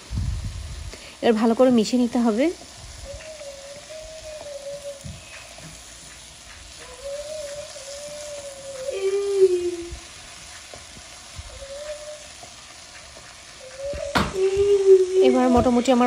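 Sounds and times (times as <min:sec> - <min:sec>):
food sizzling in a pan: 0:00.0 - 0:16.0
spatula stirring in pan: 0:02.9 - 0:13.9.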